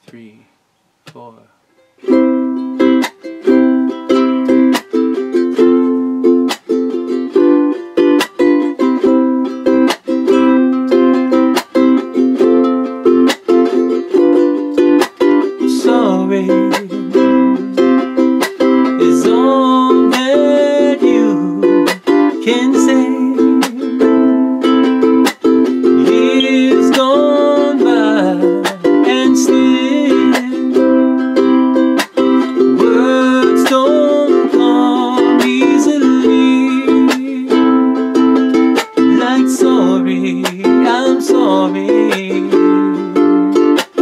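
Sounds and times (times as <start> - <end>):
ukulele strumming: 1.1 - 44.0
man singing: 15.5 - 17.8, 18.8 - 24.3, 25.8 - 31.0, 32.4 - 37.8, 39.0 - 43.4.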